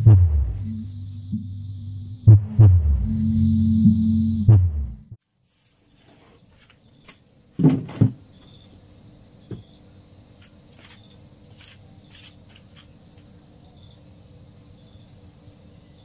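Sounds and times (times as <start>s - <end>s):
insects chirping: 0.0s - 2.4s, 6.5s - 16.0s
box thumping on concrete floor: 7.6s - 8.2s.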